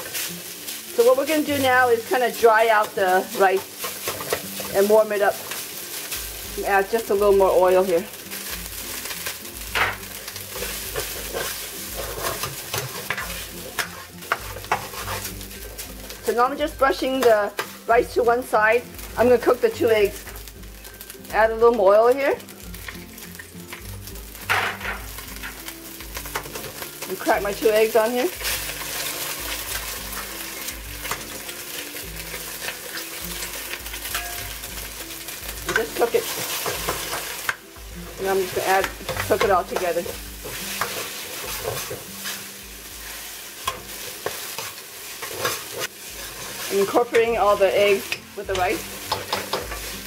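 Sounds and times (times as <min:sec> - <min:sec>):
rice sizzling in oil: 0:00.0 - 0:50.0
utensil scraping against pan: 0:03.3 - 0:05.7, 0:09.0 - 0:16.3, 0:38.2 - 0:50.0.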